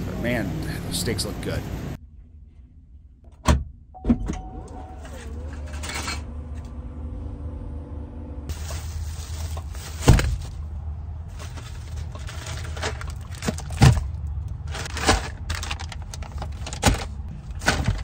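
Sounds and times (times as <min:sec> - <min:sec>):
low rumble of wind or traffic: 0:00.0 - 0:18.0
plastic packages rustling: 0:08.5 - 0:18.0.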